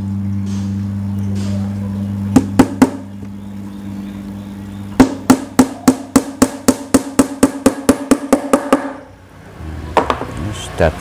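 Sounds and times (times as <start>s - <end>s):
hammer striking wooden panels: 2.3s - 3.0s, 5.0s - 9.0s.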